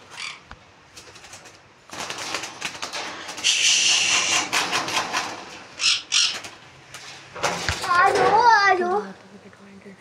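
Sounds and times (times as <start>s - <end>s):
parrot screech: 3.4s - 4.6s, 5.8s - 6.5s.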